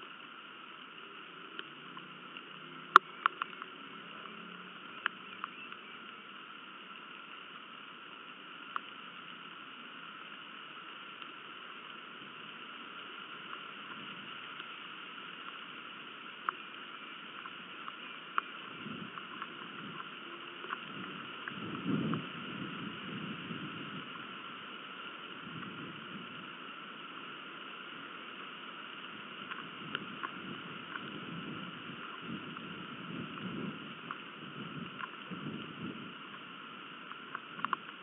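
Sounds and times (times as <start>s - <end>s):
steady rain hiss: 0.0s - 38.0s
water drips ticking: 0.2s - 22.4s.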